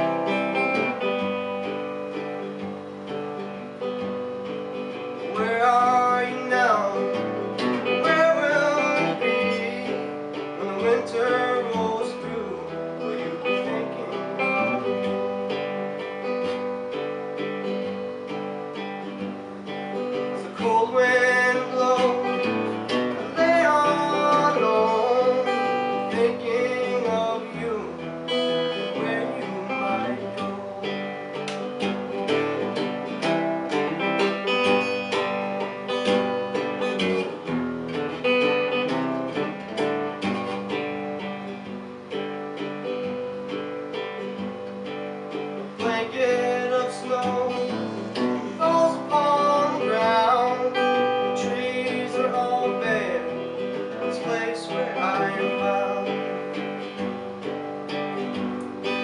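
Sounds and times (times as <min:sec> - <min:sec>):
acoustic guitar: 0:00.0 - 0:59.0
man singing: 0:05.2 - 0:15.4, 0:20.0 - 0:31.4, 0:45.4 - 0:57.1.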